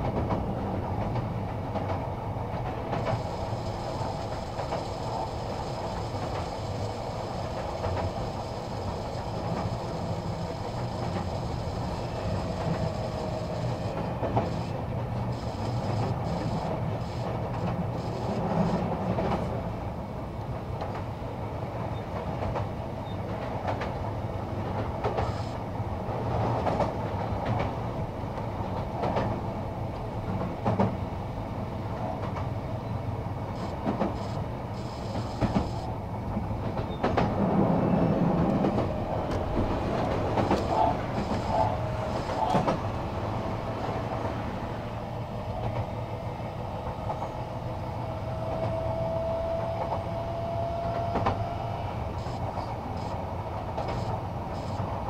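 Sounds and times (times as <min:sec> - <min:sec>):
clacks over rail joints: 0:00.0 - 0:05.1, 0:07.4 - 0:19.6, 0:24.6 - 0:25.5, 0:26.3 - 0:31.0, 0:32.0 - 0:32.6, 0:33.6 - 0:43.0, 0:50.7 - 0:51.6
train wheels rumbling on rail: 0:00.0 - 0:55.0
faint traction motor whine: 0:03.0 - 0:19.7, 0:32.9 - 0:36.2, 0:37.9 - 0:55.0.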